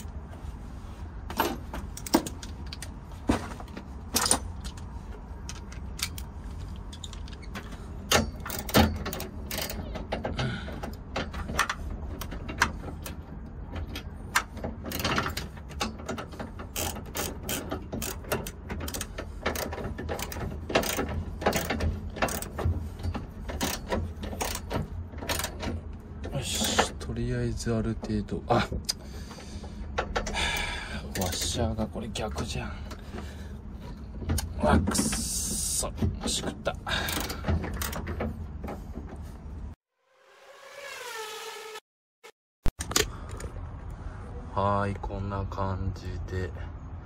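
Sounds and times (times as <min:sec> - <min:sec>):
ratchet wrench clicking: 0:05.5 - 0:10.0, 0:16.6 - 0:22.6, 0:23.5 - 0:25.7.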